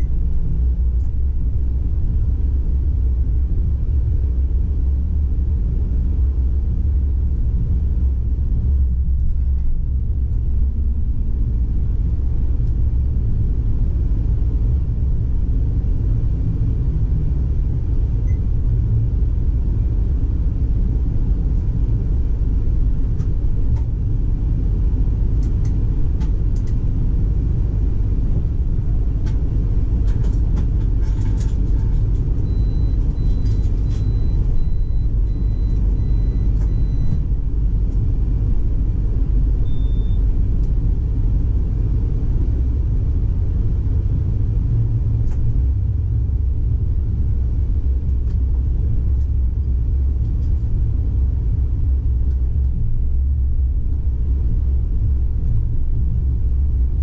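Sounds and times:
tram wheels rumbling on rail: 0.0 - 39.6.

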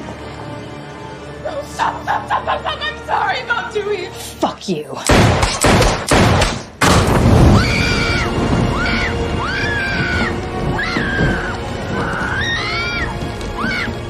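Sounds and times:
dramatic film score: 0.0 - 14.0
pistol shot ringing: 5.1 - 7.0.

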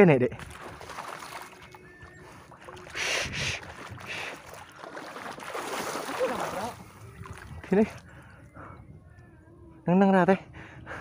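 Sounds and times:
shallow water splashing: 0.3 - 8.5.

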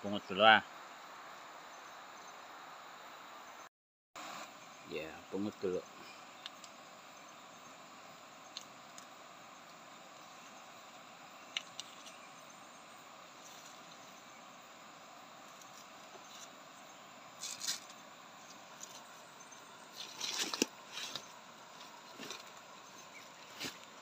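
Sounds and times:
faint background hiss: 0.0 - 24.0
twigs and leaves rustling: 11.4 - 12.6, 15.4 - 24.0.

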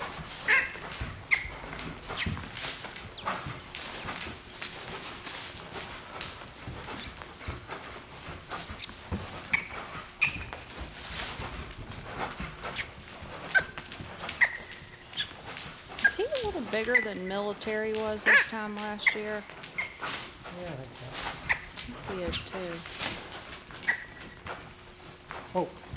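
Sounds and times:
hoofbeats on dirt: 0.0 - 25.9
short high-pitched squeaks: 0.1 - 4.3, 6.9 - 10.6, 12.2 - 20.4, 21.2 - 22.8, 23.7 - 24.6.

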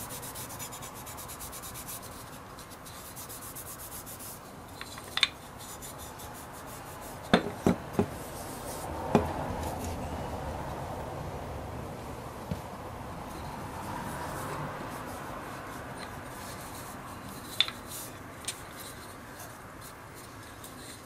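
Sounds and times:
cloth rubbing wood: 0.0 - 8.9
wooden toy knocking on bench: 7.3 - 8.1.

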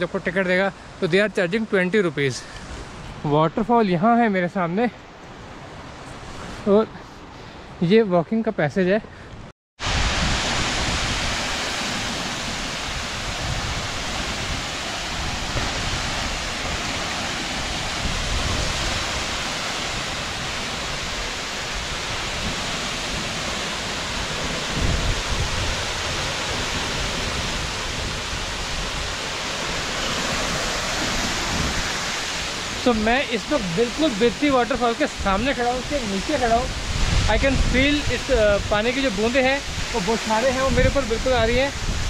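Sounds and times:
waterfall rushing onto rock: 9.8 - 42.0.

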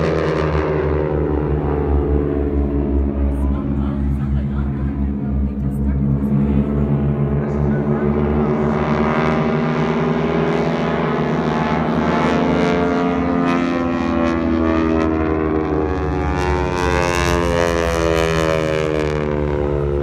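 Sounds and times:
aircraft engines droning overhead: 0.0 - 20.0.

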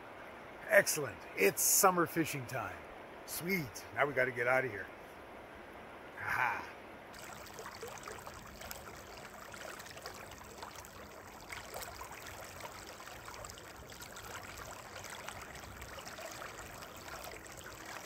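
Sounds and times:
river water running: 0.0 - 18.0
fish splashing at surface: 7.2 - 18.0.

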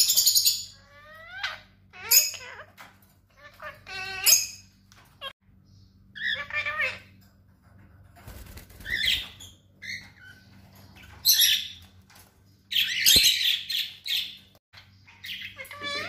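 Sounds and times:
parrots squawking and chirping: 0.0 - 7.9, 8.6 - 16.0
wings fluttering: 8.1 - 9.6.

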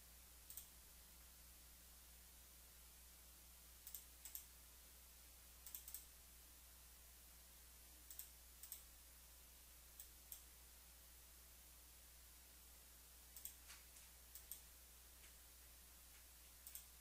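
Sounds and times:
faint low hum: 0.0 - 17.0
computer mouse clicks: 0.5 - 0.7, 3.8 - 4.5, 5.6 - 6.1, 8.1 - 8.9, 10.0 - 10.5, 13.3 - 15.4, 16.5 - 17.0.

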